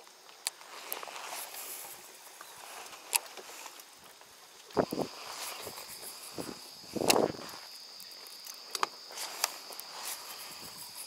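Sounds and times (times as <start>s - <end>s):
insects chirping: 0.0s - 11.0s
sharp ticks: 4.6s - 11.0s.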